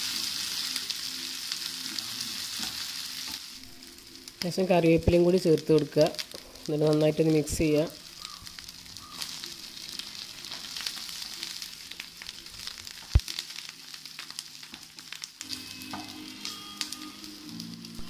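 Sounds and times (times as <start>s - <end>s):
chicken sizzling in oil: 0.0s - 18.0s
spatula stirring in frying pan: 8.0s - 16.2s.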